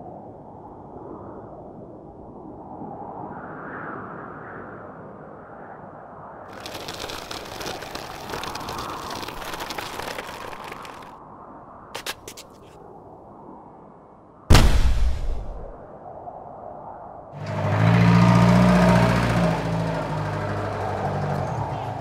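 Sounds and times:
dense crackling: 6.5 - 11.1, 14.5 - 15.8
sharp cracks: 6.5 - 11.1, 14.5 - 15.8
low rushing noise: 14.5 - 15.9.

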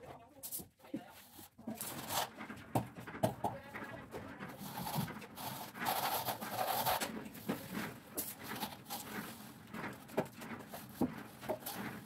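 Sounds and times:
trowel scraping cement on brick: 4.6 - 9.4.

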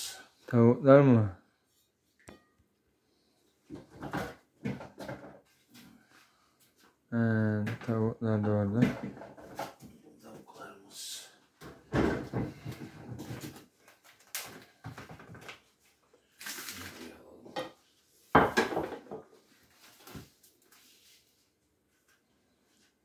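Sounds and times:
dishes clattering on a counter: 17.5 - 19.3.

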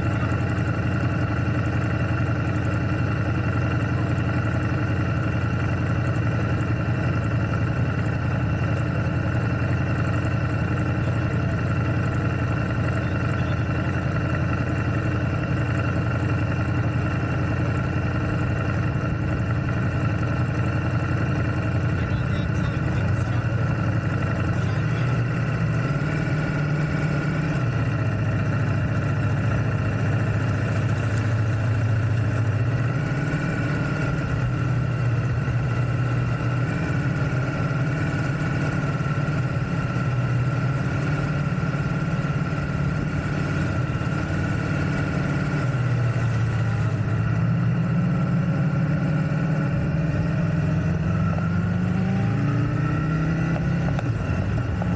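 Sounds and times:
motorcycle engine revving: 0.0 - 54.9.

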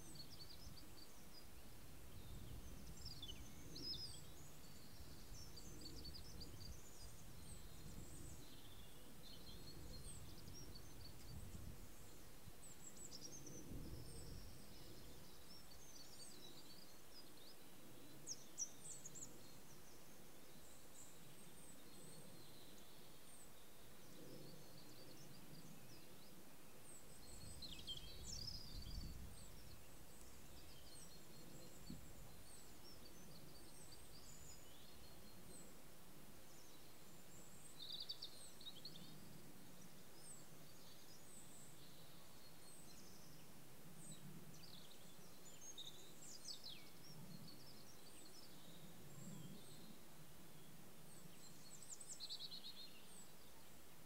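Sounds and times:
small birds chirping: 0.0 - 54.0
steady background hiss: 0.0 - 54.0.

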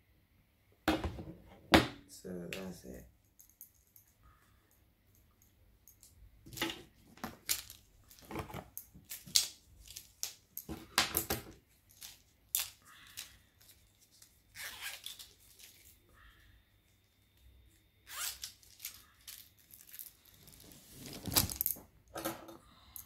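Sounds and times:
rustling and handling small objects: 2.6 - 23.0
packaging scrapes and crinkles: 18.1 - 21.7.

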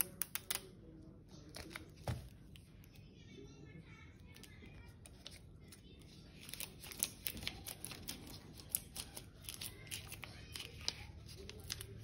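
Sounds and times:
scissors snipping paper: 6.4 - 12.0.

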